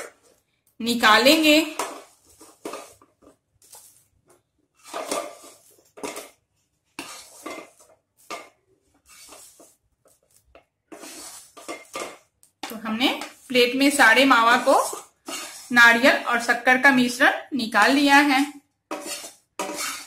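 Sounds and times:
wooden spatula scraping pan: 0.0s - 20.0s.

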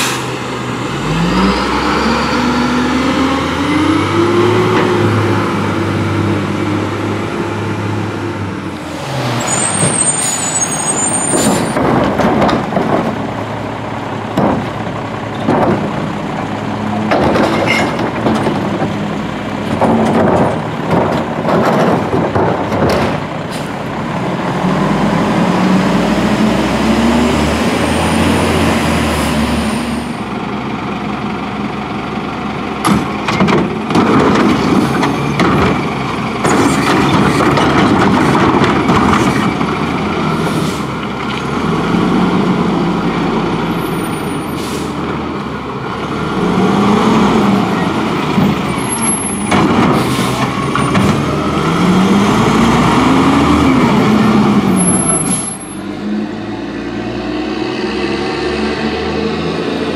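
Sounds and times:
diesel engine revving: 0.0s - 59.9s
bangs and clanks of cart emptying: 19.7s - 23.3s.

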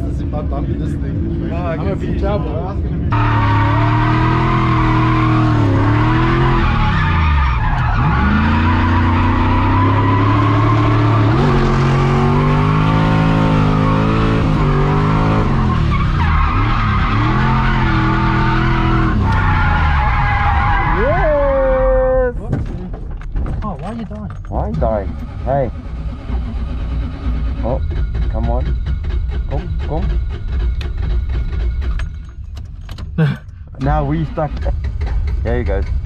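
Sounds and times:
car engine revving: 0.0s - 21.9s
tyres skidding: 0.0s - 36.0s.

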